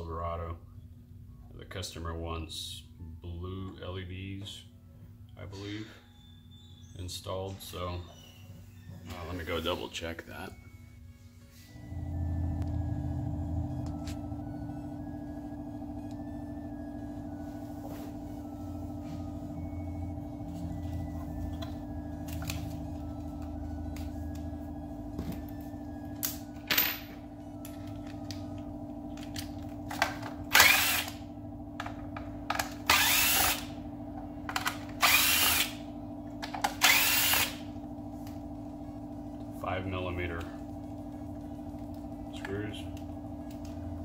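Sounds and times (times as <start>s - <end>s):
steady hum: 8.6s - 44.0s
cordless driver spinning: 30.5s - 31.2s, 32.8s - 33.7s, 34.6s - 35.8s, 36.7s - 37.6s.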